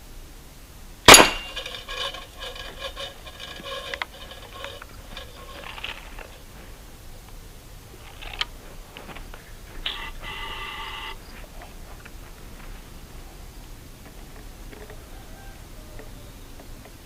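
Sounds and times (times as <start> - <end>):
high pulsing chirr: 9.6 - 11.4.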